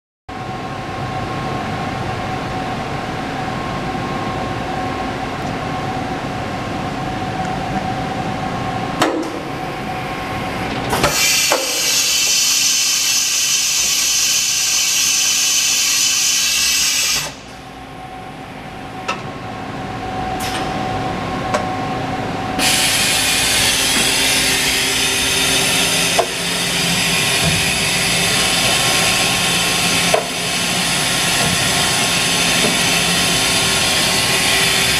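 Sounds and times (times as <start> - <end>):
machining center hum: 0.3 - 34.9
loud high hissing whir: 9.7 - 17.5, 22.5 - 34.9.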